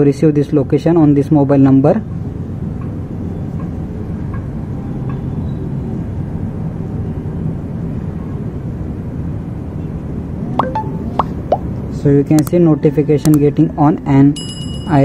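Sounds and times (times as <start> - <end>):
brief high chirps: 10.6 - 11.6.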